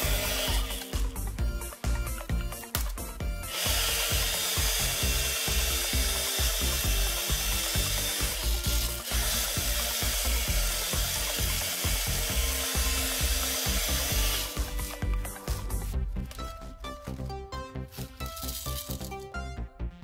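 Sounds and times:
small electric motor running: 0.0s - 1.1s, 3.4s - 15.0s.

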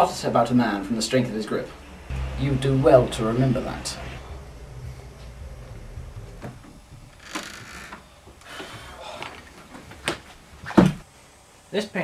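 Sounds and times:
heavy thud: 1.6s - 9.0s.

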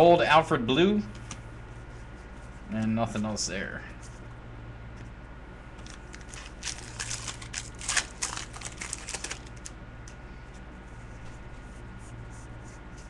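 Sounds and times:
wrapper crinkling: 5.8s - 9.7s.

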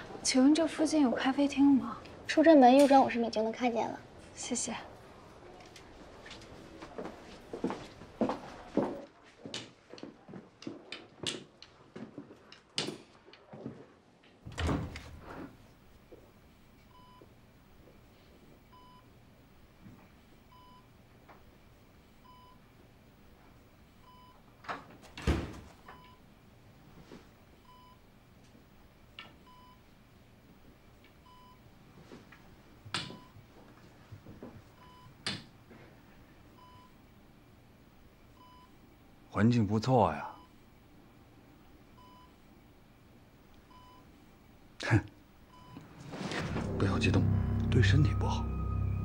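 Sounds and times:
hard-soled footsteps: 6.2s - 13.9s
patient monitor beeping: 31.2s - 31.6s, 33.0s - 33.4s, 34.8s - 35.2s, 36.6s - 37.0s, 43.7s - 44.1s, 45.5s - 49.0s.

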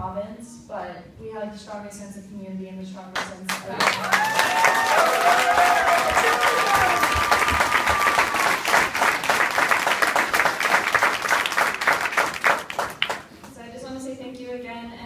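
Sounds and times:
audience applauding: 3.5s - 13.3s.

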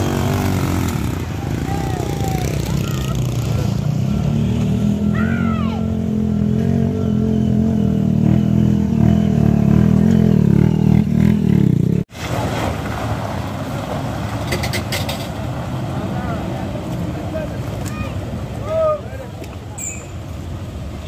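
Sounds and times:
motorcycle engine revving: 0.0s - 12.1s
truck engine rumbling: 0.0s - 21.0s.

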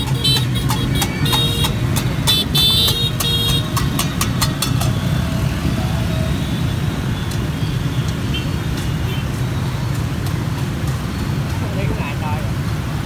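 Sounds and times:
sharp clacks: 0.0s - 5.1s
scooter engines droning: 0.0s - 13.0s.

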